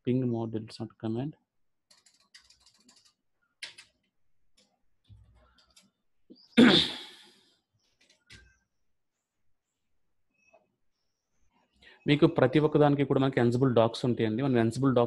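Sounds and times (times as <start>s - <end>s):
keyboard and mouse clicks: 1.9s - 6.0s, 7.8s - 8.6s.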